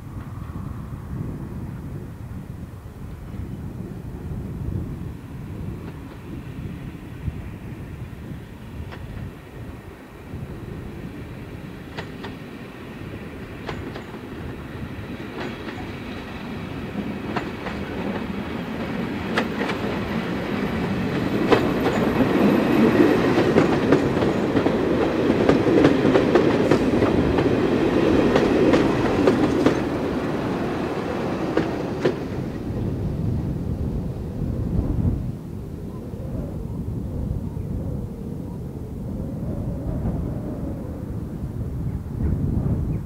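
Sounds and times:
train wheels clicking over rails: 11.1 - 32.7.

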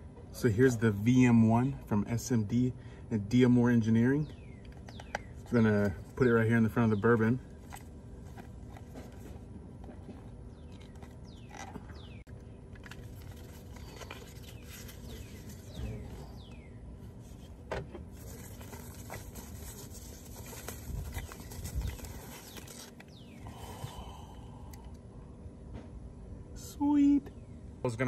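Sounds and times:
plastic bag rustling and crinkling: 12.8 - 16.4, 18.1 - 23.4
cardboard box opening: 17.4 - 23.1.

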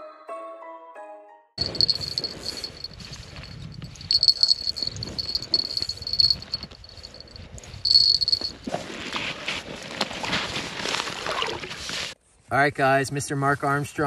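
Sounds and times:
fishing reel whirring: 4.0 - 7.2, 7.9 - 8.5.

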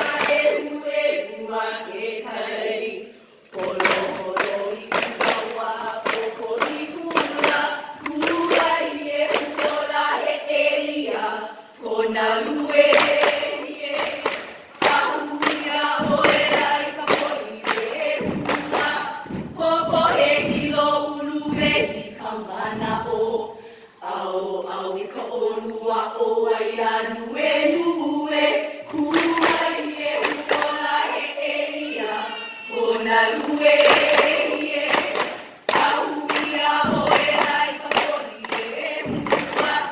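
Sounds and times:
women chanting in unison: 0.0 - 39.9
gourd drum thumps: 14.8 - 17.3, 17.9 - 22.1, 22.7 - 23.2, 36.8 - 38.1, 38.9 - 39.9.

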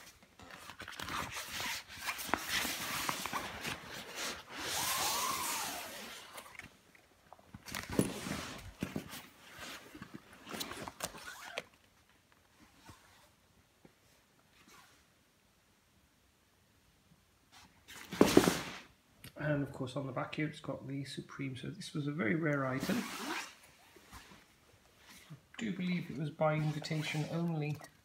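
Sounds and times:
leather jacket rustling: 0.0 - 6.8, 7.6 - 11.6, 22.8 - 28.0.

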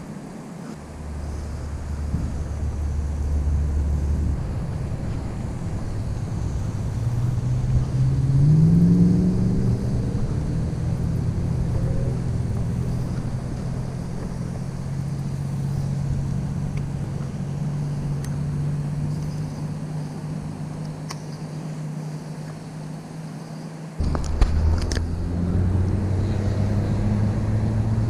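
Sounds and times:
low motor hum: 0.0 - 28.0.

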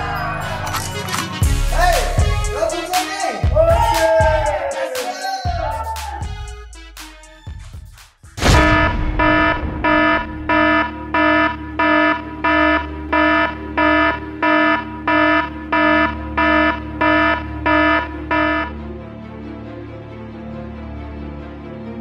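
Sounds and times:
electronic alarm beeping: 8.5 - 18.8.

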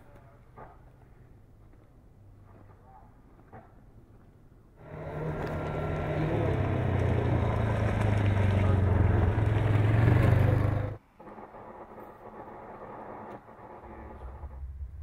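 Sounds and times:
motorbike passing by: 4.8 - 11.0.

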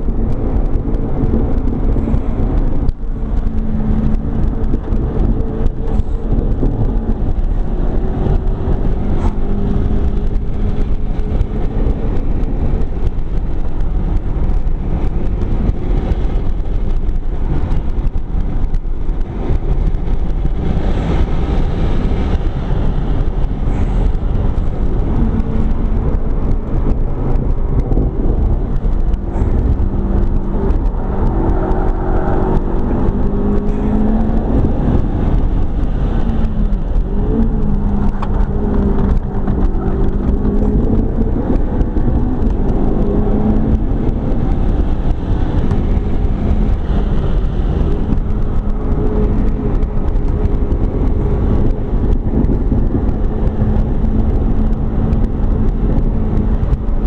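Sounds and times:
road and wind rumble: 0.0 - 57.0
car engine revving from inside cabin: 23.8 - 56.8.

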